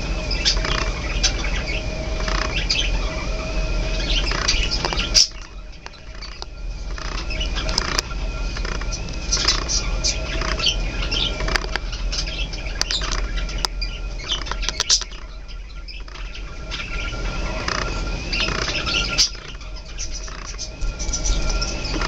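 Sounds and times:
low hum: 0.0 - 22.0
budgerigars chattering: 0.2 - 22.0.

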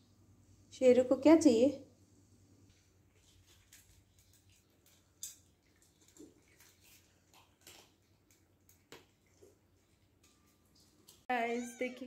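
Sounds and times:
cats crunching dry food: 2.7 - 11.2.

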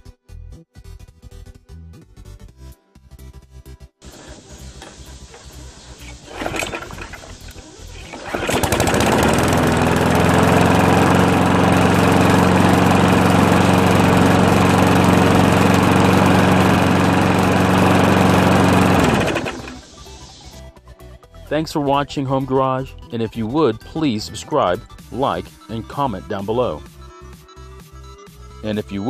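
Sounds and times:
pull-starter rasp: 4.0 - 9.5
small mower engine running: 4.0 - 20.6.

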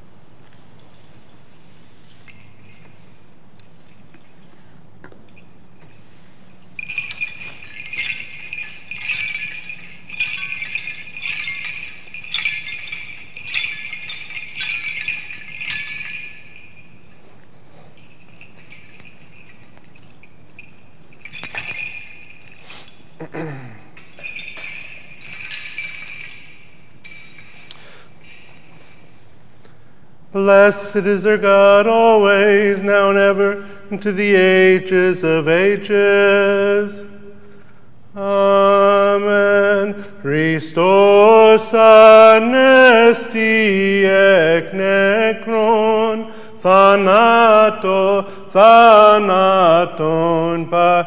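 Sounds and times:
censer bells jingling: 2.0 - 4.4, 5.3 - 29.2, 38.4 - 51.0.

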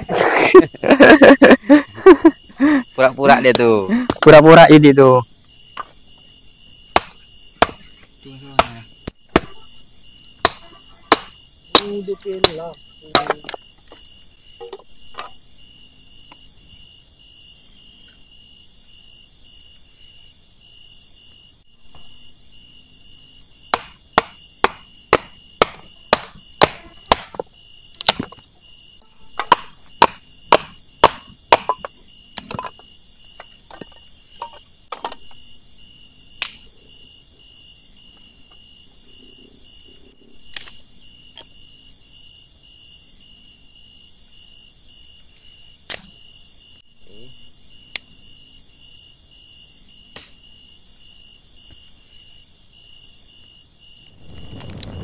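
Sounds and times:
insect trills: 0.0 - 55.0
tool striking something hard: 7.0 - 7.9, 8.5 - 9.6, 23.8 - 27.4, 29.4 - 31.9.

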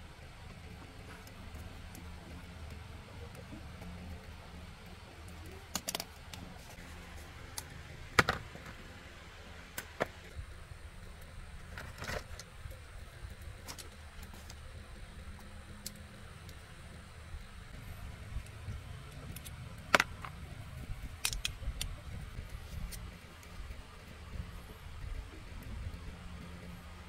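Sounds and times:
low steady hum: 0.0 - 27.0
metallic clicks of hand tools: 5.6 - 6.5, 21.2 - 21.9.

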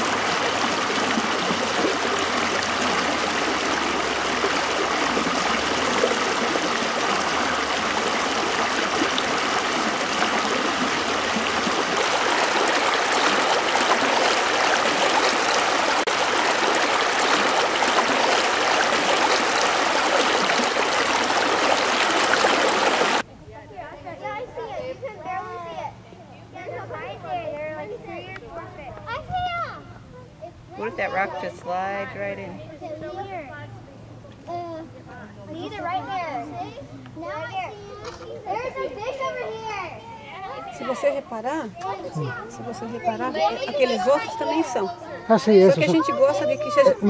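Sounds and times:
river rushing over rocks: 0.0 - 23.2.

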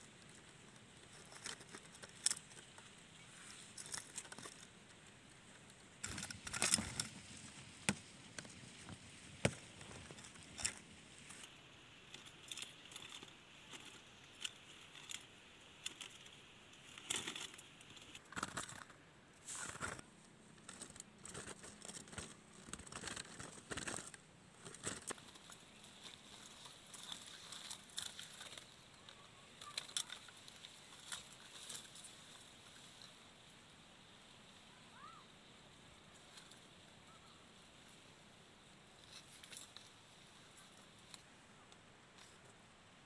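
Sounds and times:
plastic mesh trap rustling: 12.4 - 20.0, 20.6 - 28.8.

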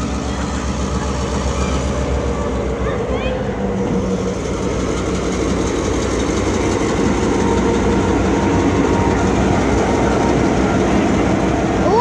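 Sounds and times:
diesel locomotive engine running: 0.0 - 12.0
train rolling: 0.0 - 12.0.

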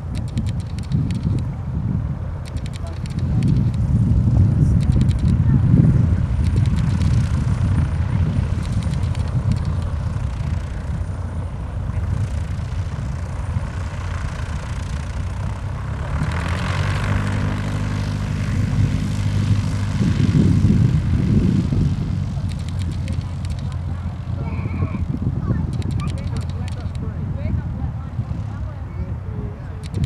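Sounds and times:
propeller plane engine hum: 0.0 - 30.0.

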